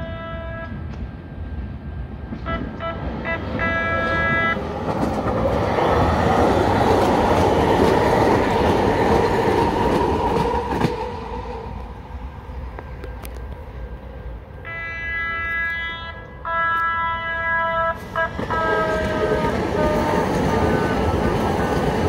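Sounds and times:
train horn toots: 0.0 - 0.9, 2.4 - 4.6, 14.6 - 21.2
steady train whine: 0.0 - 22.0
wheel-on-rail noise: 0.9 - 17.0, 17.8 - 22.0.

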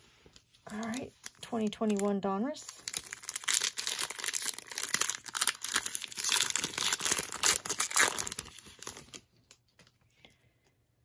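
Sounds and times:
foil wrapper tearing and crinkling: 2.7 - 9.3.

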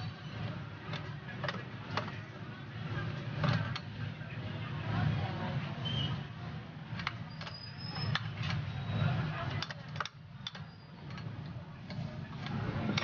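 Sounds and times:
metal parts clicking and clinking: 0.4 - 2.3, 6.9 - 13.0.

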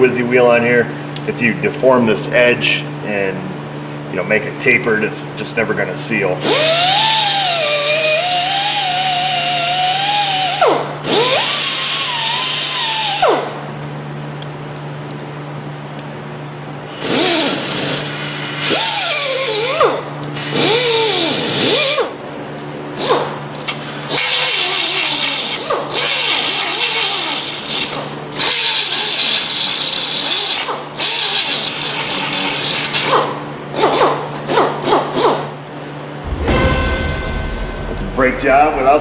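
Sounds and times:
steady low hum: 35.7 - 39.0.

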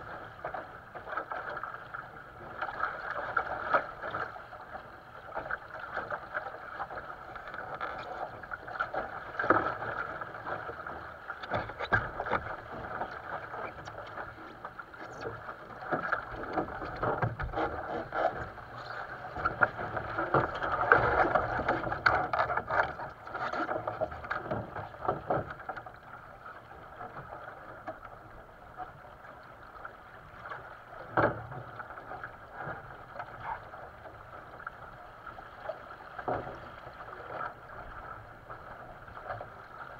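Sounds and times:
water rushing along hull: 0.0 - 39.9
knocks against boat: 11.4 - 12.5, 15.9 - 18.4, 31.1 - 31.6.

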